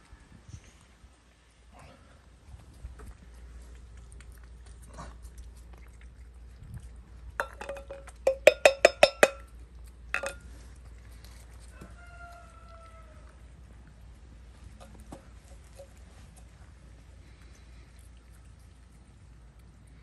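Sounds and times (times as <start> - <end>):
metal tin clinking and ringing: 7.4 - 9.5, 10.1 - 10.5.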